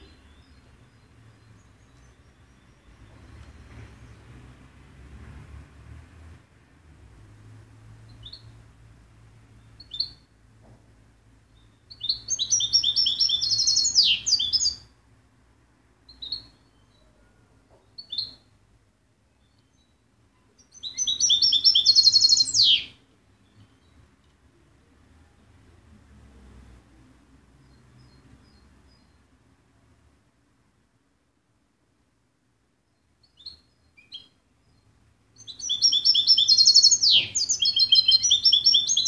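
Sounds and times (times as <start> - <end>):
goldfinch twittering song: 11.6 - 14.8, 20.6 - 24.0, 35.4 - 39.0
bird call notes: 35.4 - 39.0.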